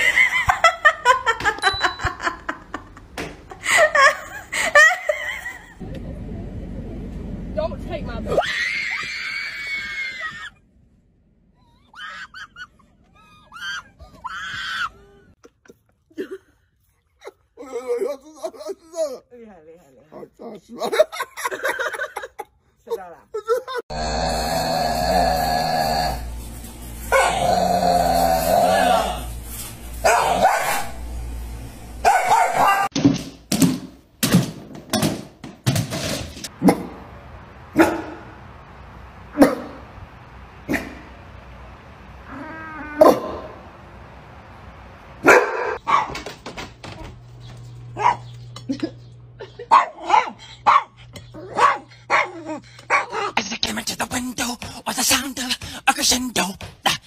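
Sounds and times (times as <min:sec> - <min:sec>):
people shrieking: 0:08.3 - 0:10.6, 0:11.8 - 0:15.2
dog barking: 0:27.1 - 0:27.4, 0:30.0 - 0:30.9, 0:32.0 - 0:32.9, 0:37.8 - 0:38.2, 0:39.4 - 0:39.8, 0:45.2 - 0:46.2, 0:48.0 - 0:48.3, 0:49.7 - 0:53.4
dog paws thumping on wooden floor: 0:45.9 - 0:47.7.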